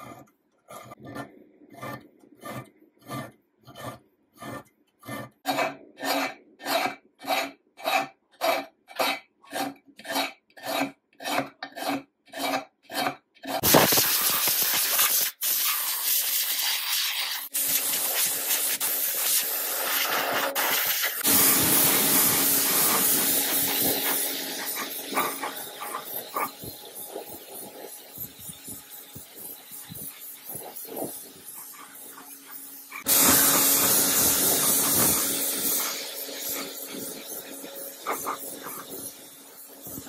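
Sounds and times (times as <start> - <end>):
hand file rasping on metal: 0.0 - 13.8, 17.4 - 40.0
spray paint hissing: 13.6 - 40.0
abrasive pad scrubbing: 16.2 - 40.0.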